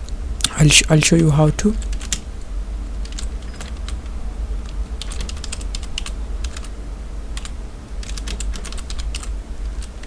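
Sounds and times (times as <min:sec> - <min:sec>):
steady low hum: 0:00.0 - 0:10.0
keyboard keys clicking: 0:01.8 - 0:02.2, 0:03.0 - 0:04.0, 0:04.6 - 0:06.7, 0:07.4 - 0:10.0.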